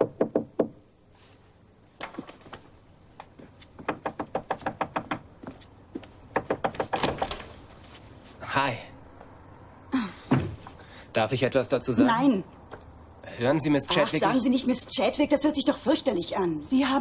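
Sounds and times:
knuckles knocking on wooden door: 3.8s - 5.6s, 6.3s - 7.1s.

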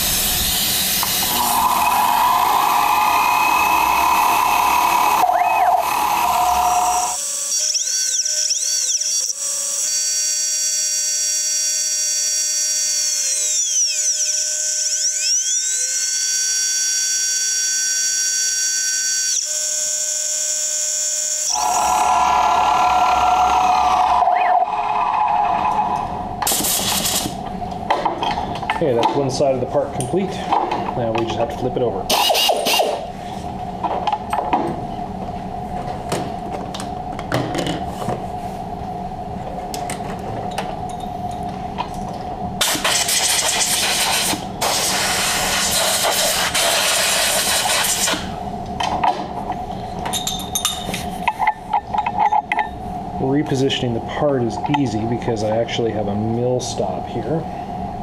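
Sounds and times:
milling machine cutting metal: 0.0s - 9.9s, 21.3s - 27.4s
whining motor tones: 0.0s - 26.5s
air blow gun blast: 26.5s - 27.4s, 42.6s - 48.3s.

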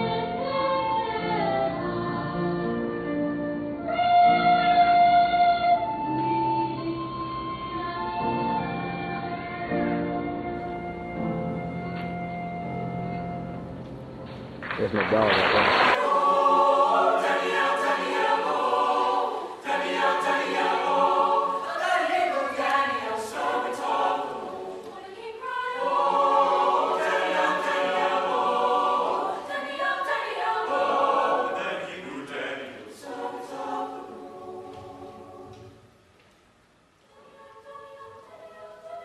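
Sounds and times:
choir singing: 0.0s - 6.5s, 15.8s - 35.9s, 37.1s - 39.0s.

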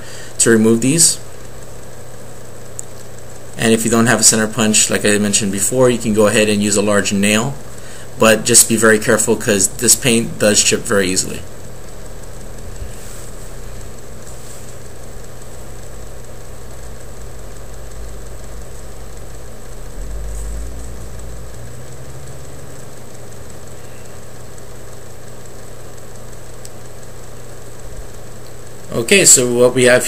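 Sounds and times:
low mechanical hum: 0.0s - 30.0s.

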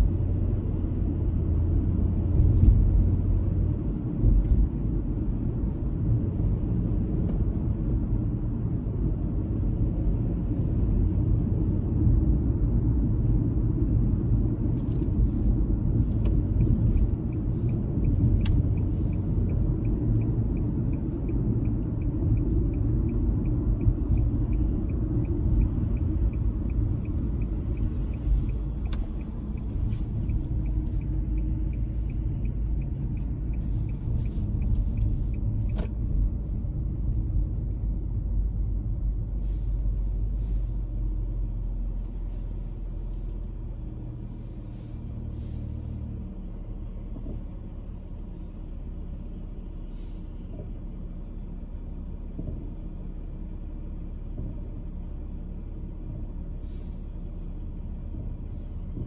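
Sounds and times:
car driving low rumble: 0.0s - 59.0s.

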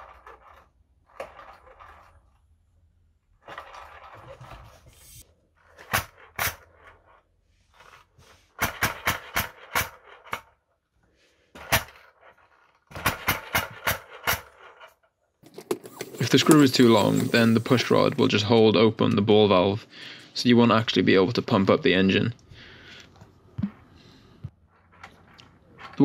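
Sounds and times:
floor pump hissing: 15.7s - 18.4s.

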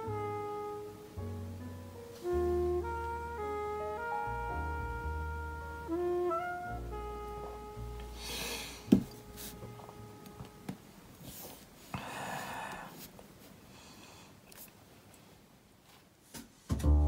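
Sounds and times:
soft background music: 0.0s - 11.4s, 16.7s - 17.0s.

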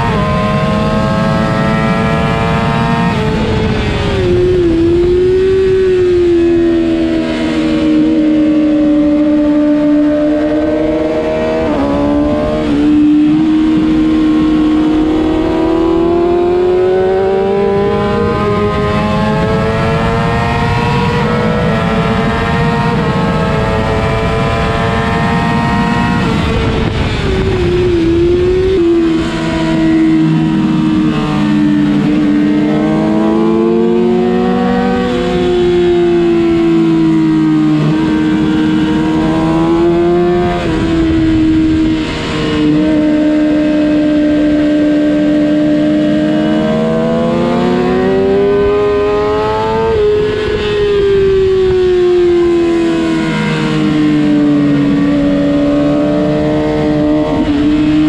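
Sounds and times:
motorcycle engine at high revs: 0.0s - 58.0s
wind rushing: 22.6s - 43.9s.

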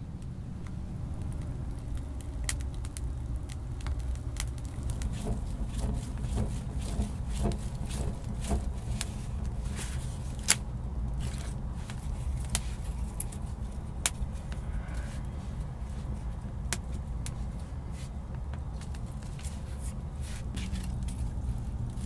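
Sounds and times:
low fire rumble: 0.0s - 22.0s
twig fire crackling: 0.0s - 22.0s
sticks laid on fire: 0.6s - 15.3s.

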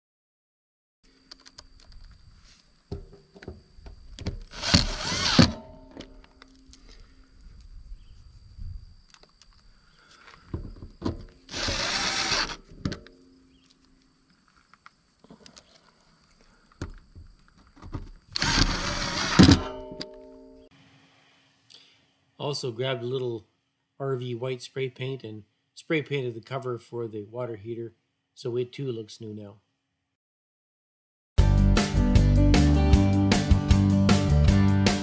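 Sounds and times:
impact driver hammering screws: 4.4s - 6.1s, 11.5s - 13.0s, 18.4s - 19.7s.

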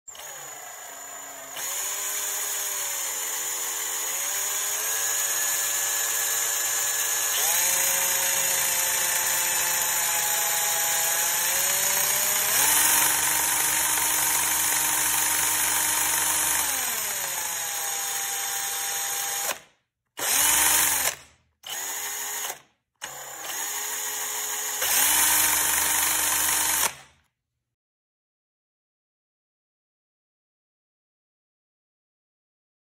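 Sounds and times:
cordless drill motor whine: 0.1s - 19.6s, 20.2s - 26.9s.

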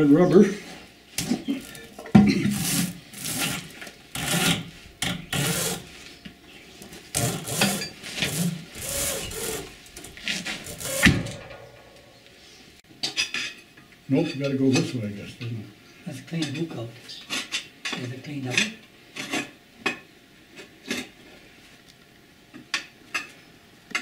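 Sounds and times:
blade scraping metal: 7.2s - 12.2s.

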